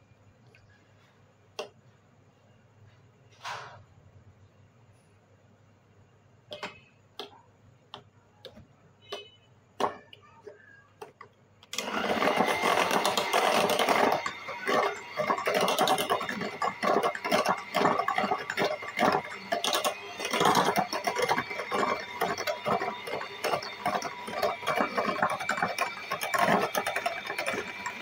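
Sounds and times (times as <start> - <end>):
electric hand mixer whipping cream: 11.7 - 28.0.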